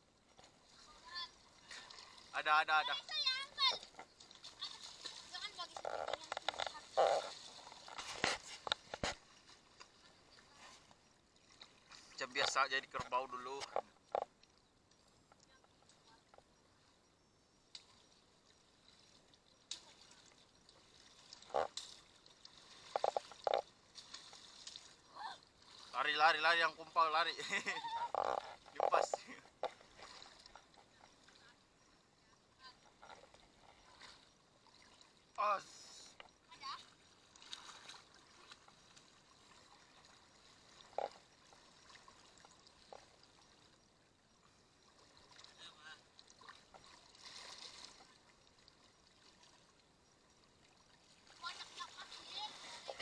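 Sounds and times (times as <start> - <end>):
water trickling and dripping: 0.2 - 8.0, 8.6 - 53.0
water splashing and pouring: 4.2 - 5.6, 18.8 - 26.6, 37.0 - 43.7, 44.9 - 49.8.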